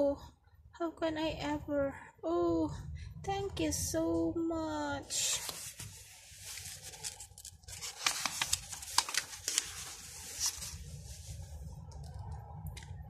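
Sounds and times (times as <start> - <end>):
paper page turning: 5.2 - 12.2.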